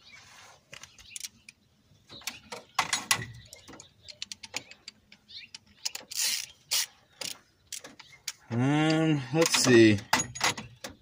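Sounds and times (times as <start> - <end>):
metallic clicks and clanks: 1.1 - 11.0.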